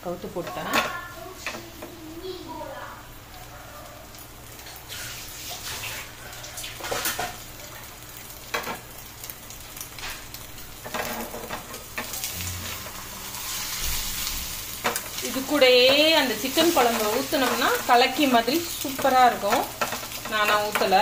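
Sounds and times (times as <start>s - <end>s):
omelette sizzling in oil: 0.0s - 21.0s
spatula scraping and knocking pan: 10.8s - 21.0s.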